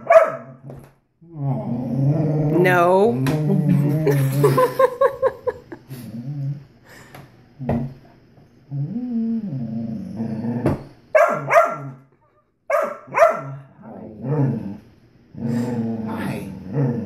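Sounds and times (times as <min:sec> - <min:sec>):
dog grumbling: 0:01.2 - 0:04.7, 0:08.7 - 0:10.9, 0:13.5 - 0:17.0.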